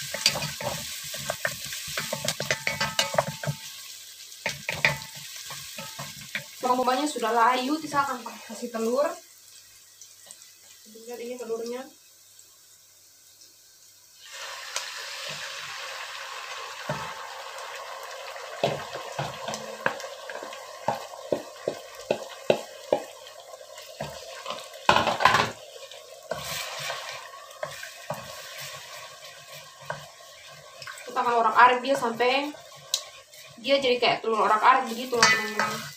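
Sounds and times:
eggs sizzling in a pot: 0.0 - 35.9
wooden spatula knocking on pot: 1.3 - 3.6, 20.9 - 23.1.

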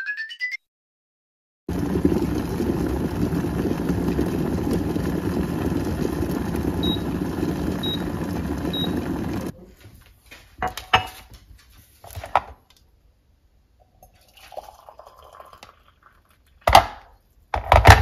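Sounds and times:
kettle water boiling: 1.7 - 9.6, 14.0 - 16.4.

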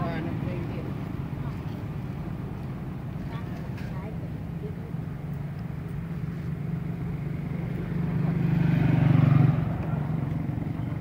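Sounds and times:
motorbike engine passing: 5.2 - 11.0.

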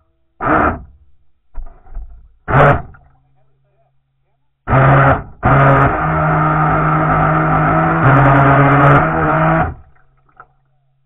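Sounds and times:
boat motor running: 4.7 - 9.9.

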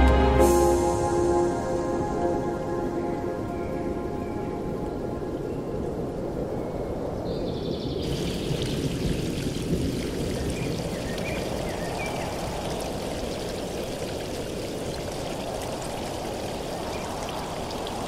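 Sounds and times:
stream running over stones: 8.0 - 18.0.

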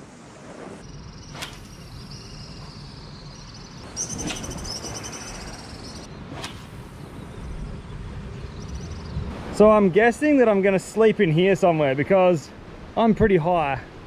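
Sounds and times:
insects buzzing drone: 0.0 - 9.6.

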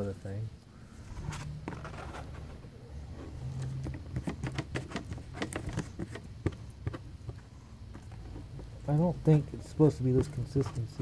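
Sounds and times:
plastic spreader scraping cardboard: 1.1 - 2.6, 3.6 - 6.2.

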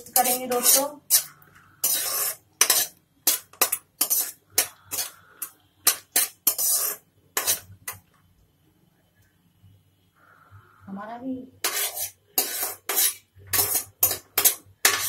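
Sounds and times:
metal spoon scraping a pan: 0.0 - 8.0, 11.6 - 15.0.

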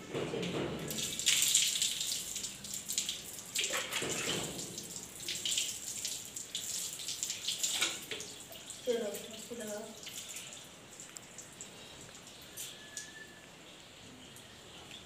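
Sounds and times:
water splashing on concrete floor: 0.3 - 12.4
water pouring over hair: 0.8 - 11.6.

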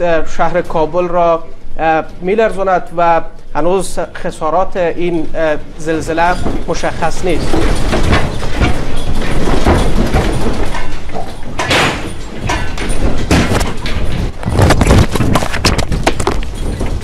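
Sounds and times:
objects knocking and clattering: 5.7 - 17.0.

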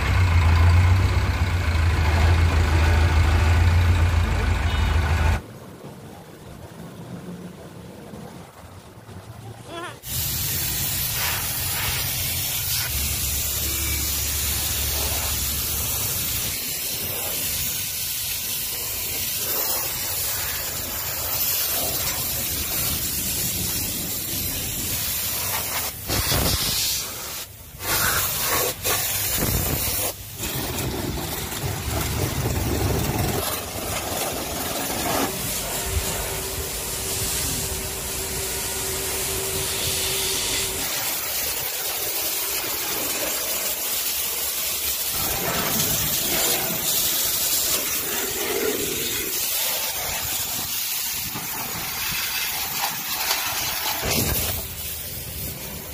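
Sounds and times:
pressure washer spraying metal: 10.0 - 55.9.

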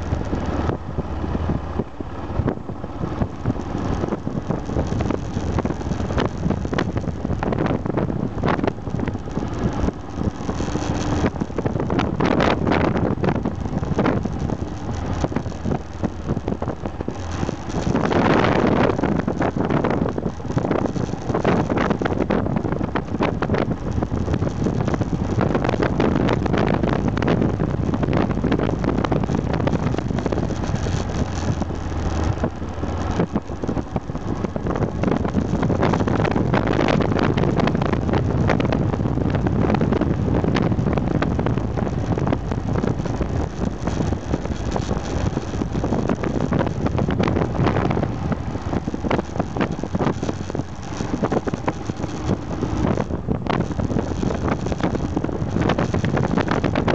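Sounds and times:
motorcycle engine running: 0.0 - 56.9
wind rush on microphone: 0.0 - 56.9.

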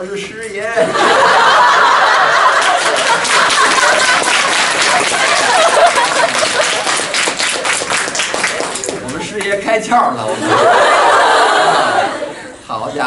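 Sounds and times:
audience laughing loudly: 0.8 - 7.4, 10.2 - 13.0
scattered clapping: 2.4 - 9.8.

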